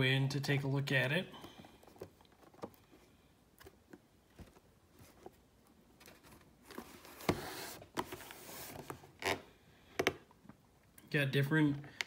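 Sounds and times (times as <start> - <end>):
rustling and rubbing of box: 4.3 - 9.5.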